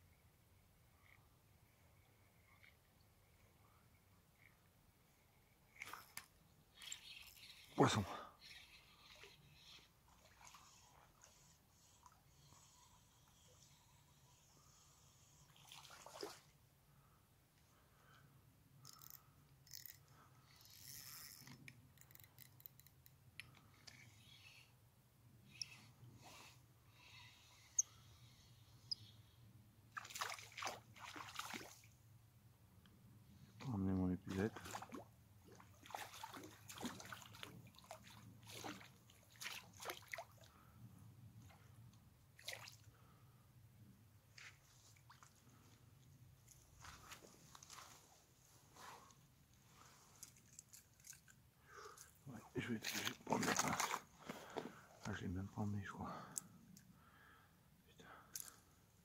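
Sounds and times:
fishing reel ticking and scraping: 5.7 - 9.9, 10.6 - 15.5, 18.8 - 24.8, 25.5 - 29.2.

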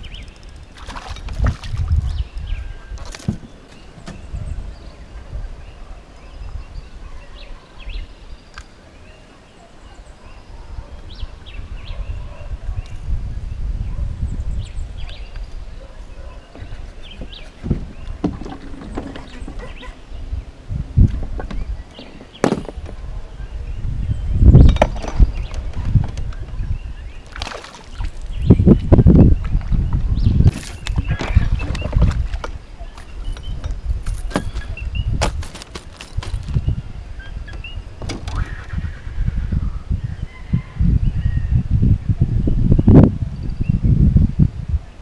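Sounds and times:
wind rumble on microphone: 0.0 - 9.2, 9.9 - 45.0
birds chirping: 0.0 - 41.2
water splashing and sloshing: 0.5 - 2.4, 16.5 - 20.0, 27.2 - 36.6.

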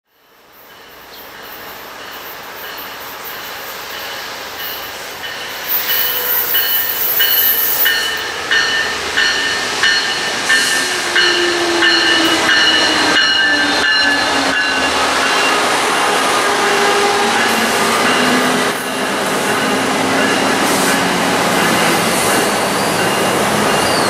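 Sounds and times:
train bell ringing: 0.2 - 24.0
train wheels rumbling: 0.4 - 24.0.

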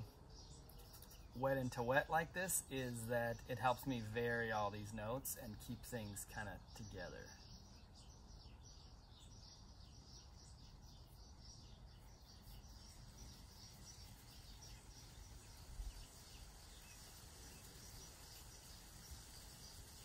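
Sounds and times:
soft high chirping: 6.3 - 20.0.

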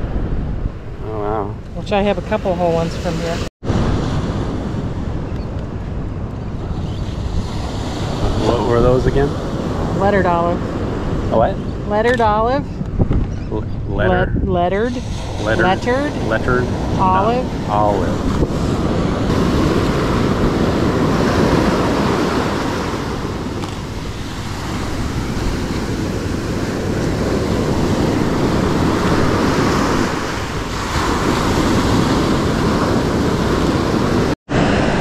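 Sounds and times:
wind rumbling on microphone: 0.0 - 35.0
ocean surf breaking on sand: 7.2 - 11.5, 14.9 - 35.0.

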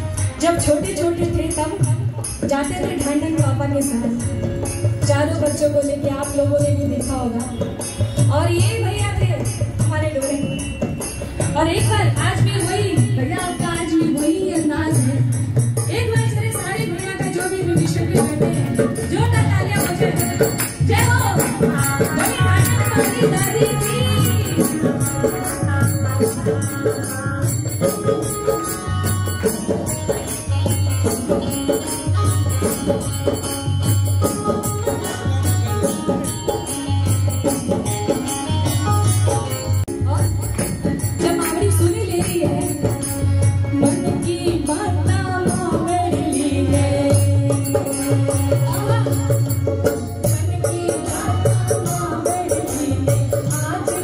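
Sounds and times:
jingling hand percussion: 0.0 - 54.0
keyboard and drums beat: 15.0 - 54.0.

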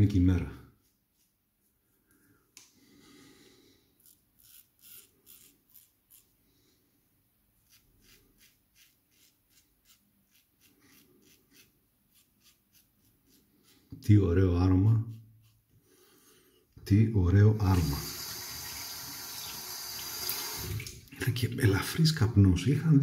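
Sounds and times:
razor scratching through stubble: 4.0 - 6.4, 7.6 - 14.0.

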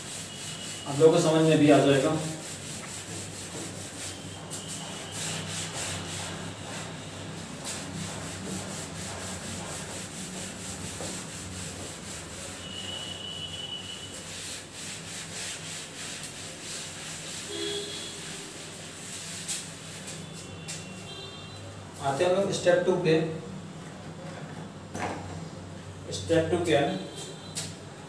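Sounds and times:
cloth scrubbing blackboard: 0.0 - 20.9.

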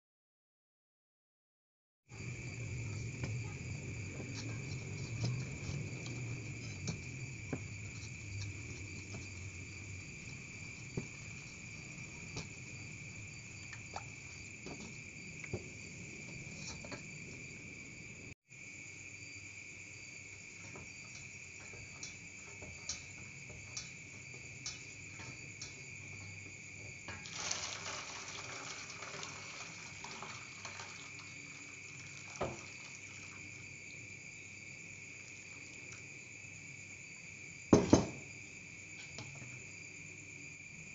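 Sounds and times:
wooden spoon stirring in a bowl: 2.6 - 14.9
splashy noise: 27.2 - 31.3.

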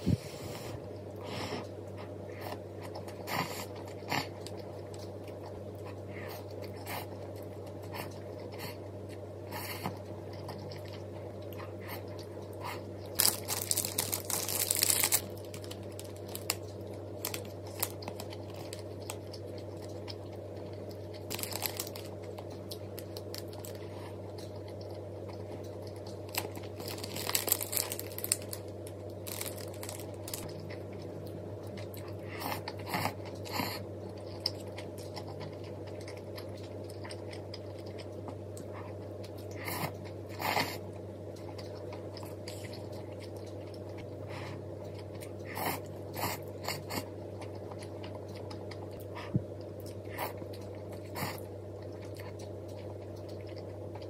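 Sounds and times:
steady low hum: 0.0 - 54.0
food crunching: 2.0 - 54.0
rustling and tearing: 13.2 - 18.8, 21.3 - 22.1, 26.3 - 28.6, 29.2 - 30.5.

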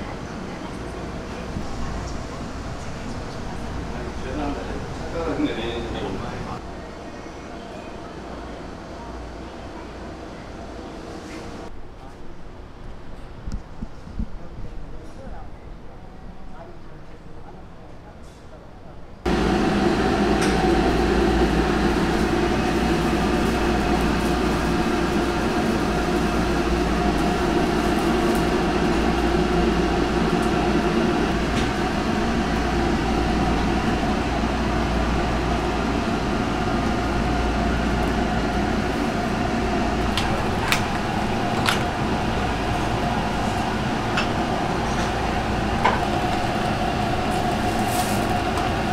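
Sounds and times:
ventilation hum: 18.8 - 48.9
broth boiling: 19.3 - 48.9
gas burners: 19.3 - 48.9.

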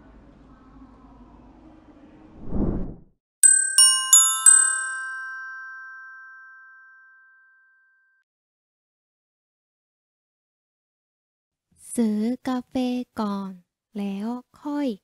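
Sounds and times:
short whoosh: 2.3 - 3.1
bell-like jingle notes: 3.4 - 7.6.

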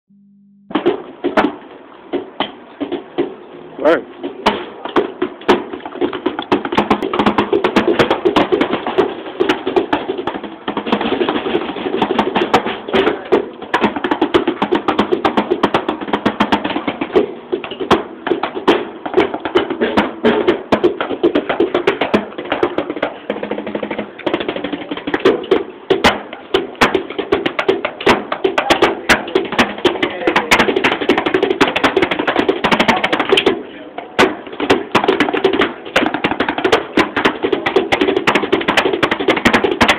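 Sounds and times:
drumsticks tapping drum pads: 4.2 - 39.9.

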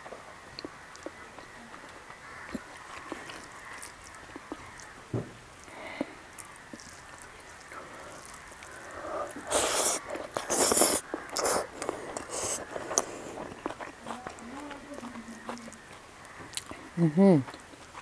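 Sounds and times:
wet chewing and smacking: 0.5 - 18.0.

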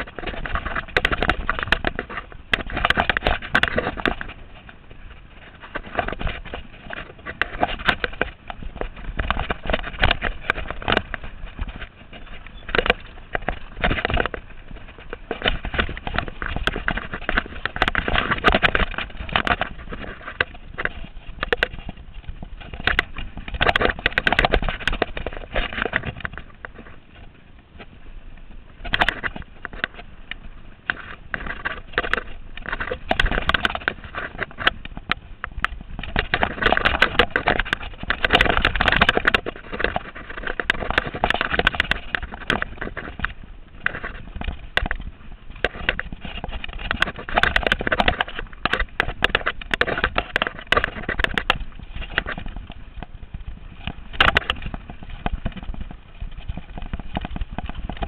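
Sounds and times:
mountain bike rattling over trail: 0.0 - 58.0.

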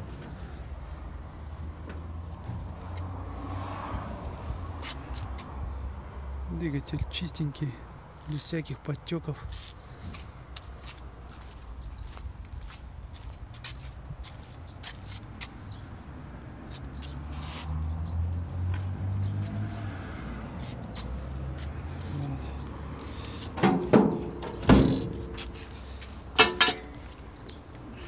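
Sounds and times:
birds chirping: 11.6 - 13.4, 14.3 - 28.0
sharp metallic clanks: 26.4 - 27.0.

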